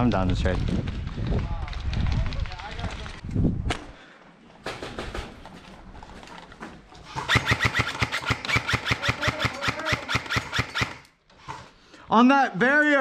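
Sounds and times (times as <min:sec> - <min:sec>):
airsoft rifle rapid shots: 0:07.1 - 0:11.1.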